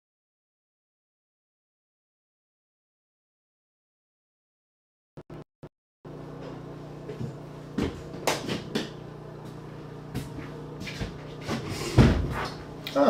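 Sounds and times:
low room hum: 0:06.1 - 0:13.0.

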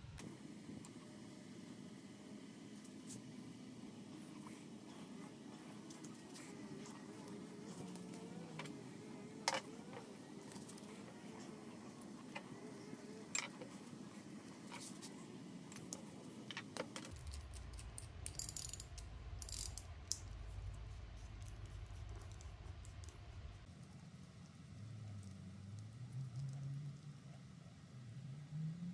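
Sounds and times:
low steady hum: 0:00.0 - 0:28.9
small parts clicking and clinking: 0:13.3 - 0:13.7, 0:15.7 - 0:20.4.

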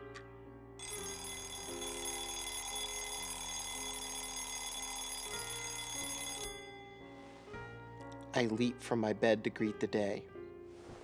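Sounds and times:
soft sustained music: 0:00.0 - 0:11.0
alarm clock bell ringing: 0:00.8 - 0:07.2.

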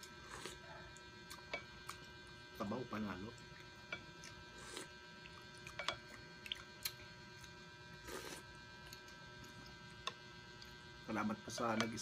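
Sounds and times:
steady electrical hum: 0:00.0 - 0:12.0
slurping broth: 0:08.0 - 0:08.5.

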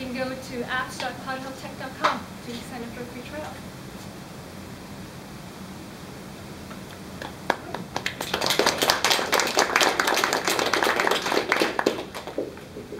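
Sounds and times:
audience applauding: 0:07.2 - 0:12.9.

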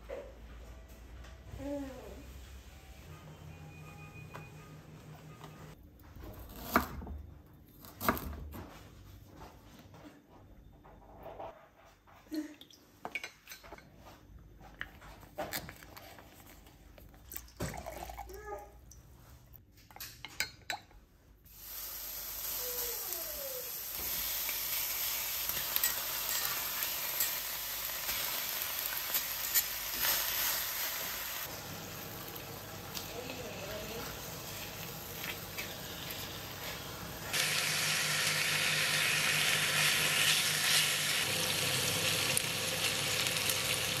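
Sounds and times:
meat sizzling in a skillet: 0:21.5 - 0:33.1, 0:34.1 - 0:44.0.

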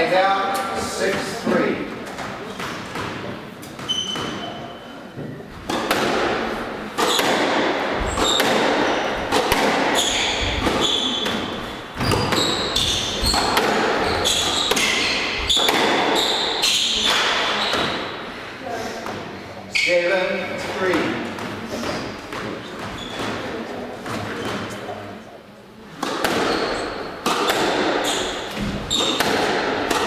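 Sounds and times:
sneakers squeaking on wooden floor: 0:02.0 - 0:18.3, 0:18.9 - 0:24.9, 0:26.0 - 0:30.0
squash ball cracking off walls: 0:05.6 - 0:16.4, 0:26.0 - 0:30.0.

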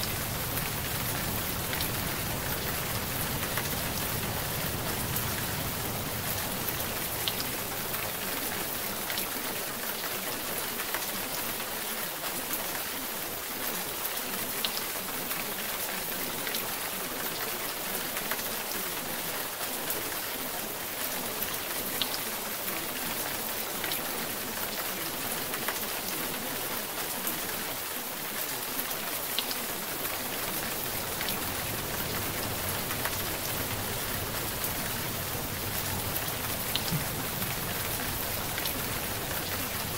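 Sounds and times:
steady rain hiss: 0:00.0 - 0:39.9
raindrop ticks: 0:35.8 - 0:38.8.

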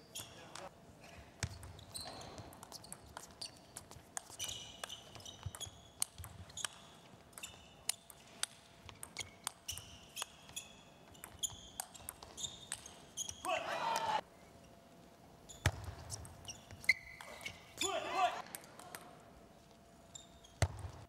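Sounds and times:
shoes squeaking on floor: 0:00.0 - 0:00.7, 0:01.4 - 0:07.8, 0:09.0 - 0:13.5, 0:15.4 - 0:18.0, 0:19.8 - 0:21.0.

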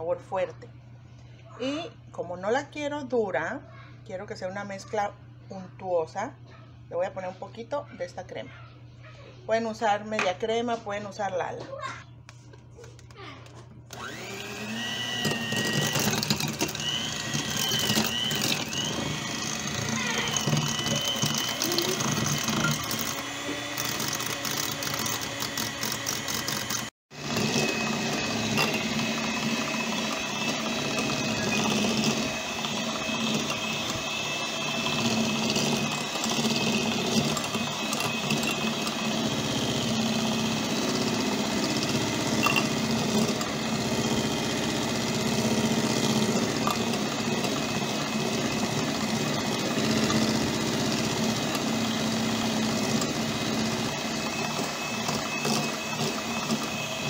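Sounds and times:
electric hand mixer whipping: 0:13.9 - 0:57.0.

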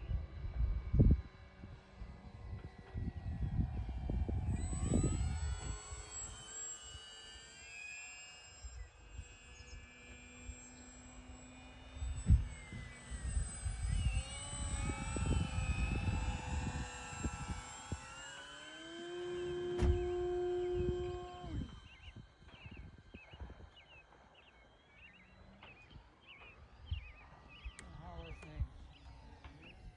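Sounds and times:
wind buffeting microphone: 0:00.0 - 0:06.0, 0:12.0 - 0:18.2, 0:19.4 - 0:23.9
model plane motor whine: 0:00.0 - 0:29.9.

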